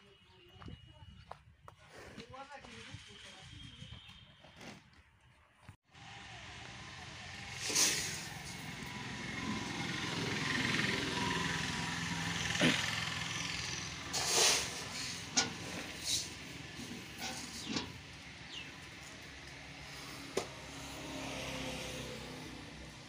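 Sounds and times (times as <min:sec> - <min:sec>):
tractor engine idling: 0:08.3 - 0:20.6.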